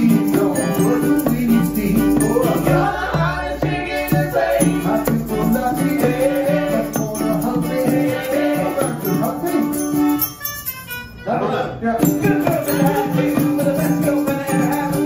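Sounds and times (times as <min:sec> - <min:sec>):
wordless sung vocal harmony: 0:00.0 - 0:09.9, 0:11.2 - 0:15.0
repeating bass line: 0:00.0 - 0:10.7
bongos: 0:00.0 - 0:11.0, 0:12.0 - 0:15.0
maraca shaking: 0:00.0 - 0:11.0, 0:12.0 - 0:15.0.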